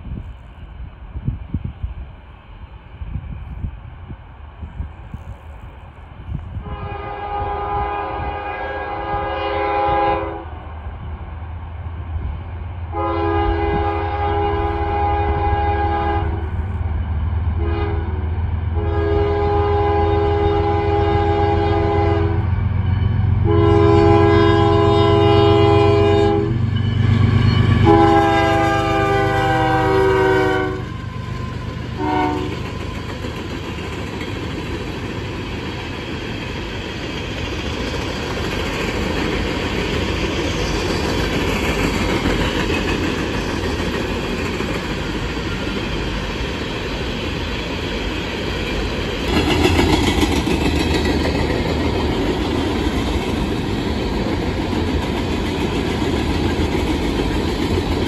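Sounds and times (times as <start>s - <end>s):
diesel locomotive rumble: 0.0s - 58.0s
locomotive air horn blasts: 6.6s - 10.5s, 12.9s - 16.4s, 17.6s - 18.2s, 18.8s - 30.9s, 32.0s - 32.6s.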